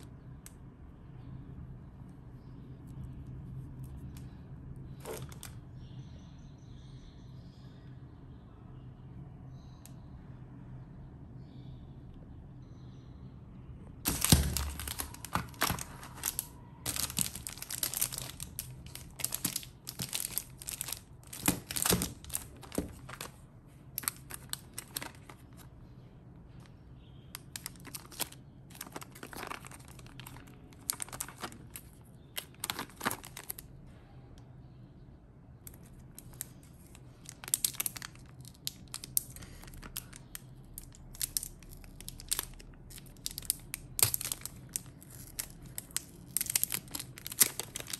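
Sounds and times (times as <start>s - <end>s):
plastic packaging crinkling: 5.0s - 5.6s, 14.1s - 25.7s, 27.4s - 33.7s, 35.7s - 47.9s.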